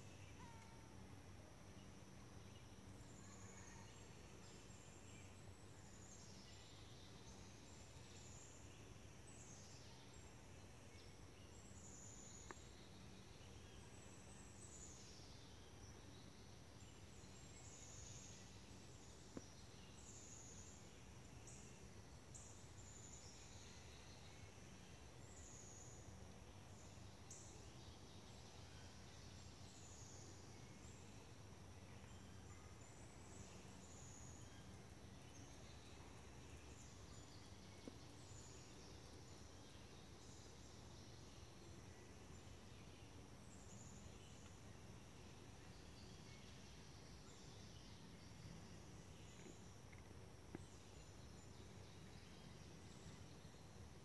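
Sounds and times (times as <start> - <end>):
high insect hum: 0.0 - 54.0
faint ticks: 12.4 - 12.7.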